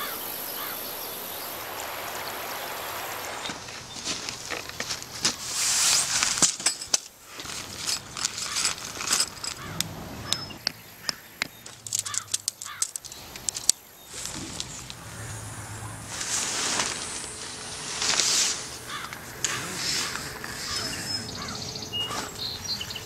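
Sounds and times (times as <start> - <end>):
nylon tent rustling: 1.4 - 10.3, 14.1 - 21.0
tent pole clicks and knocks: 4.2 - 15.0.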